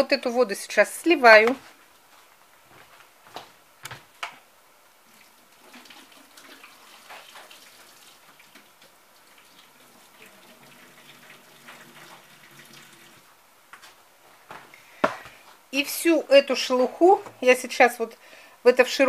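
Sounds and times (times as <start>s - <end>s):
water pouring and splashing: 5.1s - 13.3s.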